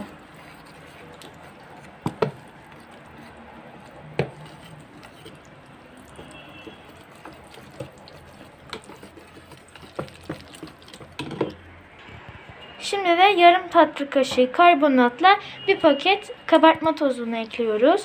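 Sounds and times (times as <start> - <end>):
whisk swishing in batter: 0.0 - 11.2
whisk knocking on container: 2.0 - 2.5, 4.2 - 4.6, 6.2 - 11.5.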